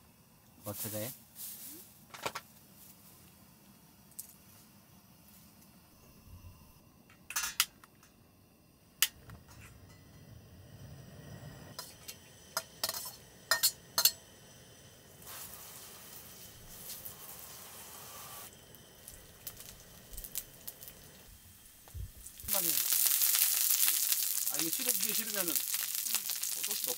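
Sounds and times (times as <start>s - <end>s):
metal utensils clinking on pots: 7.3s - 7.7s, 11.8s - 14.2s
garlic sizzling in oil: 11.7s - 26.9s.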